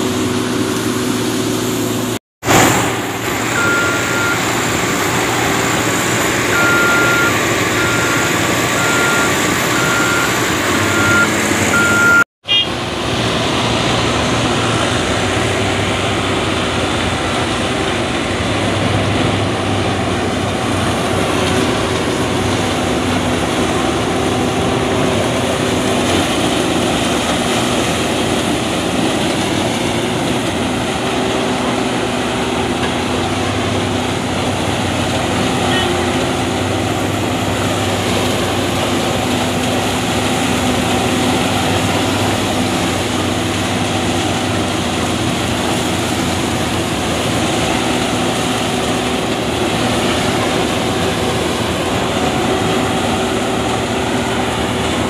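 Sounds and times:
harvester engine and cutting machinery: 0:00.0 - 0:55.0
tractor running: 0:00.0 - 0:55.0
high beeping alarm: 0:03.5 - 0:12.7.

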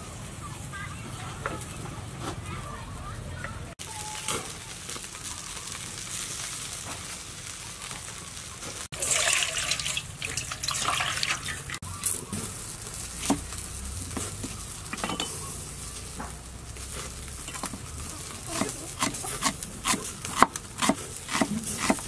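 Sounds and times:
steady hiss: 0:03.8 - 0:22.0
water dripping: 0:08.9 - 0:11.8
water sloshing and splashing: 0:08.9 - 0:11.8.

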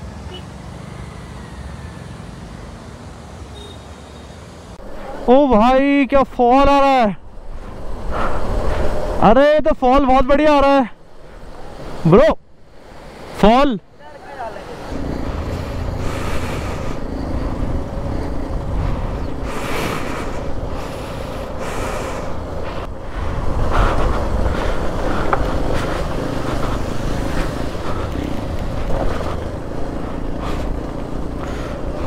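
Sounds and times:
wind noise on microphone: 0:15.0 - 0:30.8
motorcycle engine running: 0:23.3 - 0:32.0.

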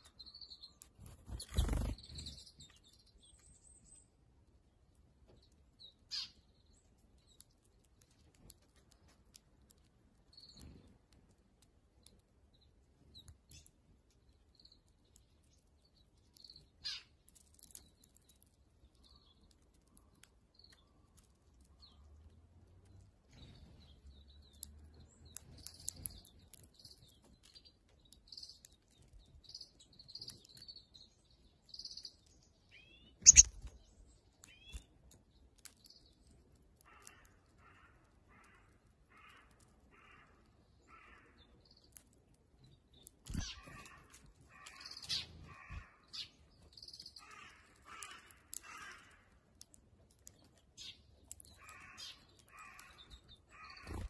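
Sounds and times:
small birds chirping: 0:00.0 - 0:54.0
sharp clicks: 0:33.2 - 0:33.8.

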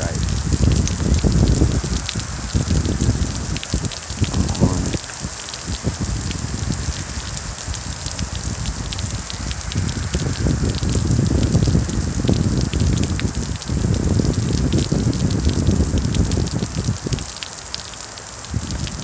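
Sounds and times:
low rushing rumble: 0:00.0 - 0:13.2
heavy rain and hail pelting: 0:00.0 - 0:19.0.

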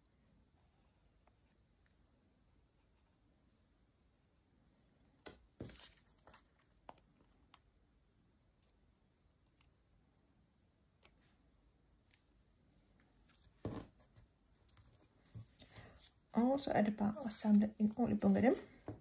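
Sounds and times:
paper rustling: 0:05.6 - 0:07.2, 0:13.0 - 0:19.0.

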